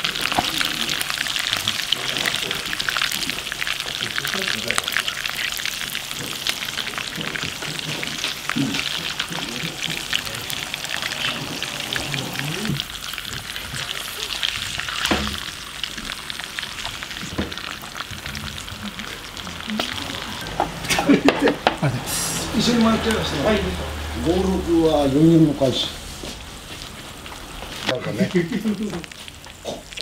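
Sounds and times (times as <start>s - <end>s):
chopsticks turning food: 0.0s - 22.3s
eel sizzling in hot oil: 0.0s - 30.0s.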